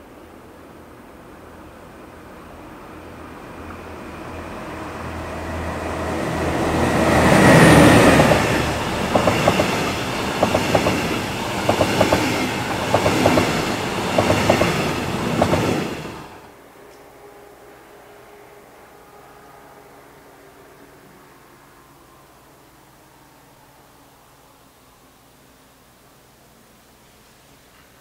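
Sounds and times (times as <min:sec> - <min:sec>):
diesel locomotive engine: 0:00.3 - 0:16.6
train wheels clicking over rails: 0:05.4 - 0:16.5.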